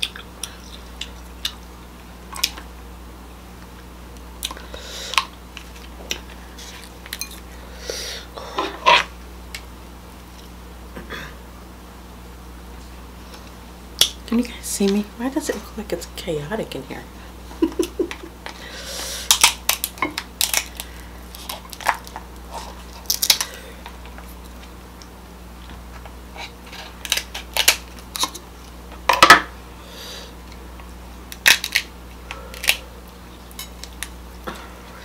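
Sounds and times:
crab shell cracking: 19.3 - 22.3, 22.9 - 23.6, 27.0 - 28.4, 31.3 - 32.8, 33.5 - 34.2.

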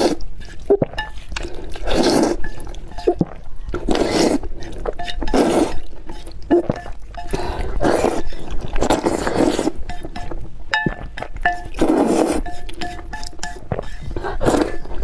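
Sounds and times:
person slurping noodles: 0.0 - 9.8, 11.7 - 12.9, 13.6 - 15.0
chopsticks clinking on bowl: 9.9 - 14.0.

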